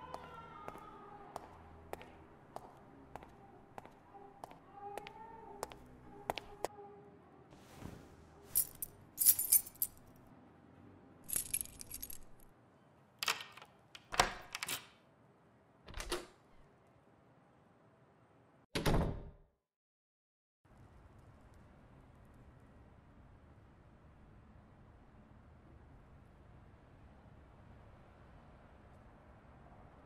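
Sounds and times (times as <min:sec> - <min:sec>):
jingling metallic rattle: 0:08.6 - 0:10.0, 0:11.3 - 0:12.4.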